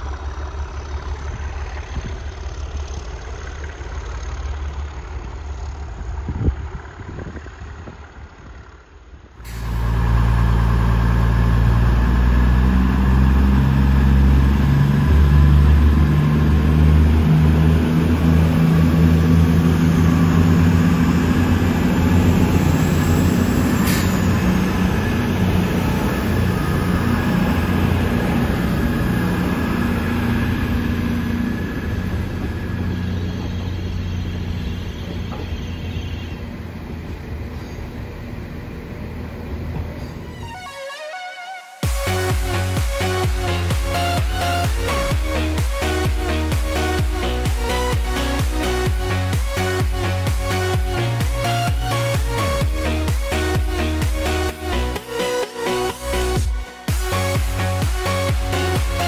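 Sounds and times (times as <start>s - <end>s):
distant diesel locomotive rumbling: 0.0s - 41.1s
diesel train passing: 0.0s - 59.0s.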